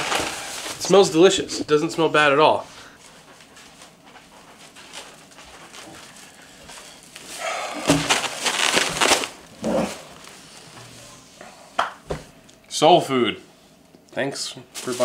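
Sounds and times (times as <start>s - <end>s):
plastic bags rustling: 0.0s - 1.4s, 4.6s - 10.8s, 14.7s - 15.0s
bags thumping on wooden table: 7.8s - 9.0s.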